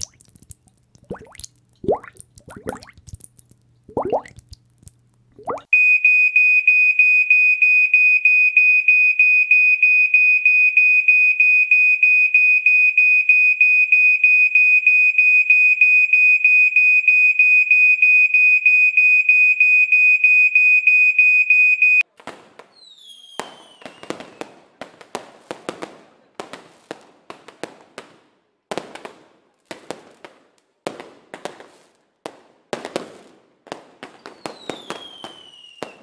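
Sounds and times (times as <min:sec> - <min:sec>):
water bubbles plopping: 0:00.0 - 0:05.7.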